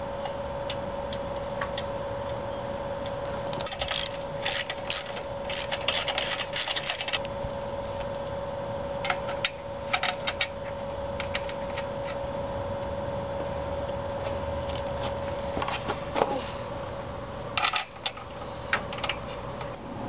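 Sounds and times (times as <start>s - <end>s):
faint hum: 0.0s - 20.0s.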